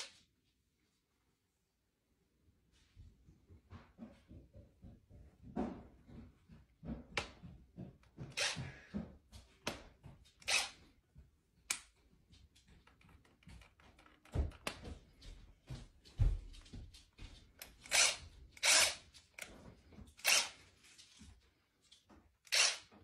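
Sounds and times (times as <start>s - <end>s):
cordless drill spinning: 8.2s - 8.8s, 10.4s - 10.8s, 17.6s - 21.2s, 22.4s - 23.0s.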